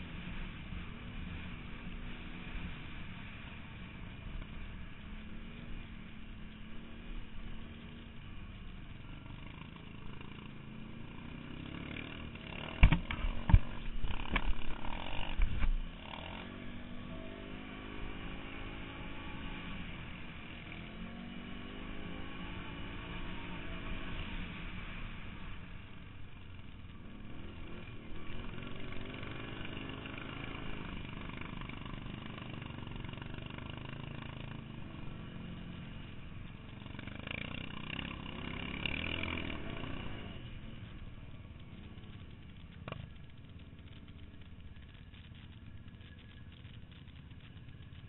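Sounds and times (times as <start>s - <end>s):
quad bike engine revving: 9.3s - 19.9s, 27.2s - 36.1s, 36.7s - 41.0s.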